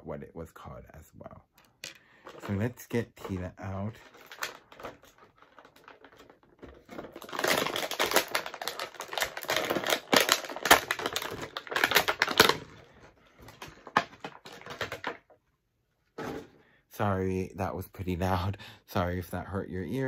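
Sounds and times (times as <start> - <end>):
packaging crinkling: 2.1 - 15.4.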